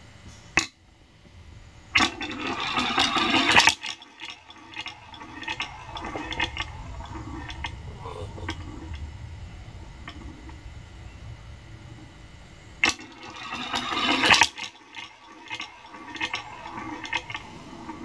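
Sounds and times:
steel balls rolling on wood: 2.0s - 10.8s, 12.8s - 18.0s.

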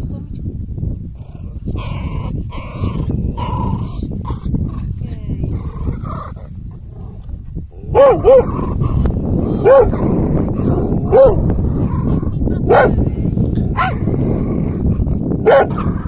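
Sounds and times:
steady low rumble: 0.0s - 16.0s
dog barking: 7.9s - 8.6s, 9.6s - 10.1s, 11.0s - 11.5s, 12.6s - 13.0s, 13.7s - 14.1s, 15.4s - 16.0s.

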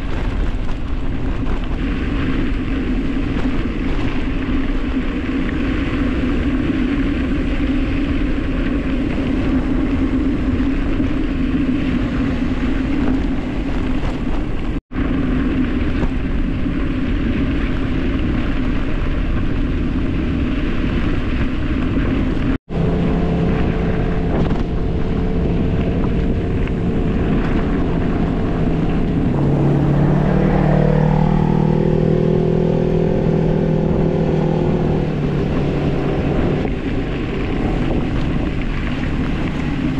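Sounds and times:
wind rushing over microphone: 0.0s - 39.9s
tyres rumbling on dirt: 21.9s - 39.9s
steady hum varying in pitch: 22.7s - 39.9s.

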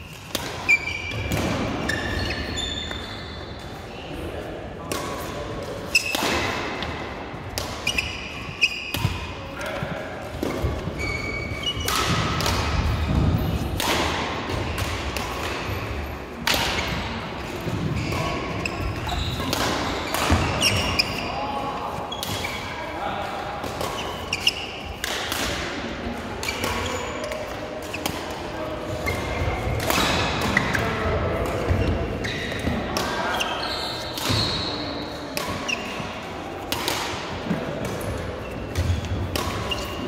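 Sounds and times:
shoes squeaking on court: 0.0s - 4.0s, 7.6s - 13.7s, 16.7s - 22.7s, 23.8s - 25.1s, 26.4s - 29.8s, 30.4s - 36.3s, 37.8s - 40.0s
racket striking shuttlecock: 11.6s - 15.7s, 16.4s - 17.1s, 36.6s - 40.0s.

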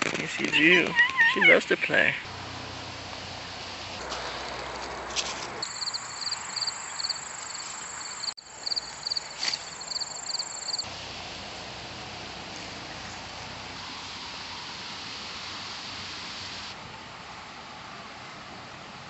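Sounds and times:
insect buzzing and chirping: 5.6s - 11.2s.

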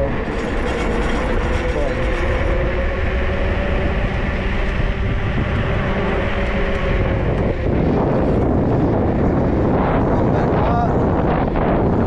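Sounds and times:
dense low rumble: 0.0s - 12.0s
electric motor whine: 0.0s - 12.0s.

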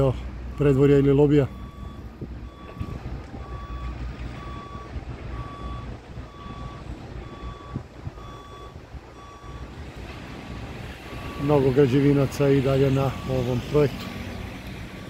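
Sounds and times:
reversing alarm beeping: 1.4s - 9.7s, 10.5s - 13.9s.

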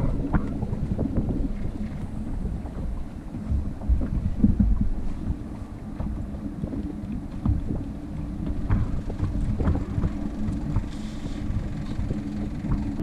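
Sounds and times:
faint steady hum: 0.0s - 13.0s
wind buffeting microphone: 0.0s - 13.0s.

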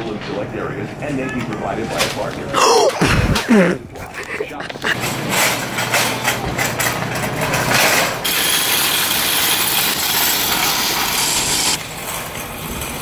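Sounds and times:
steady loud hiss: 7.9s - 13.0s.

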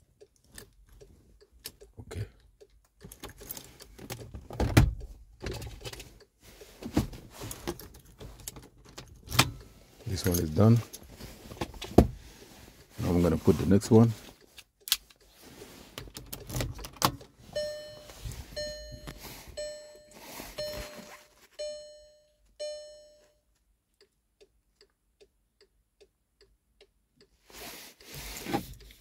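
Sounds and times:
rustling handling noise: 5.9s - 22.0s
car warning chime: 17.4s - 23.6s.

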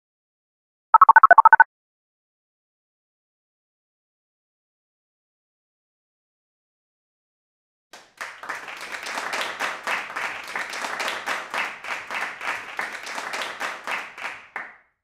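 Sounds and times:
crowd applause: 8.0s - 14.8s.

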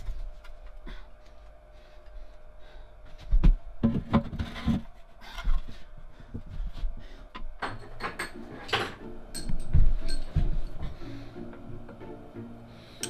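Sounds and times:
background music: 7.7s - 13.0s.

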